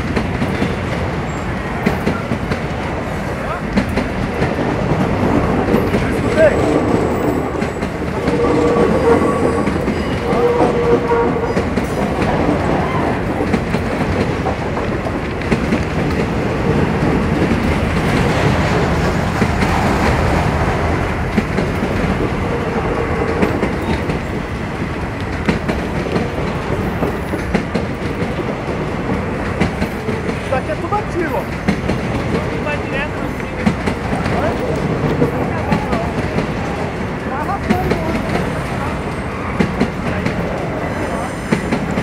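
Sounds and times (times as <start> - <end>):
freight train wheels rumbling: 0.0 - 42.0
train wheel squeal: 6.4 - 12.1, 23.4 - 24.3.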